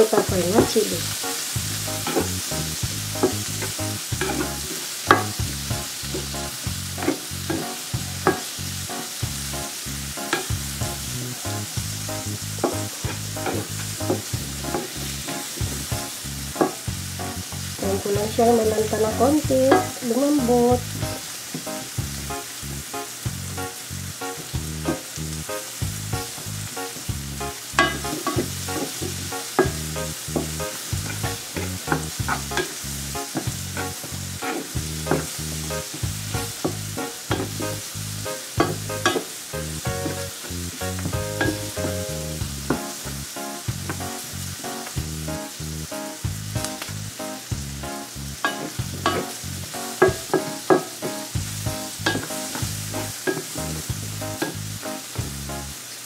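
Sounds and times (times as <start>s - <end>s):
wooden spatula scraping a pan: 0.0s - 5.4s, 7.0s - 8.5s, 12.6s - 16.0s, 27.8s - 37.8s
background music: 0.0s - 55.9s
vegetables sizzling in butter: 0.0s - 56.0s.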